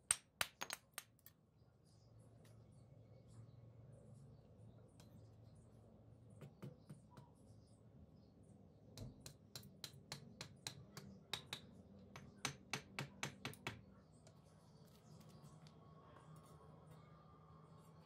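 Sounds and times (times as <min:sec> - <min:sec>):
hammer handle tapping brick: 0:09.0 - 0:13.8.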